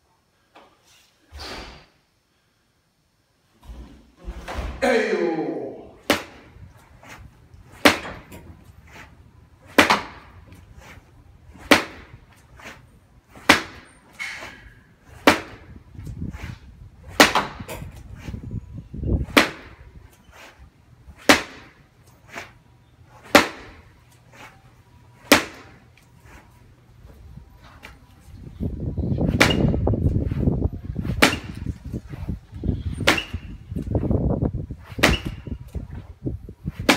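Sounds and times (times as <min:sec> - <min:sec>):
punches smacking striking post: 0:06.0 - 0:06.5, 0:07.8 - 0:08.4, 0:09.7 - 0:10.3, 0:11.6 - 0:12.1, 0:13.4 - 0:13.9, 0:15.2 - 0:15.7, 0:17.1 - 0:17.7, 0:19.3 - 0:19.8, 0:21.2 - 0:21.8, 0:23.2 - 0:23.8, 0:25.3 - 0:25.8, 0:29.3 - 0:29.8, 0:31.1 - 0:31.6, 0:33.0 - 0:33.5, 0:34.9 - 0:35.5.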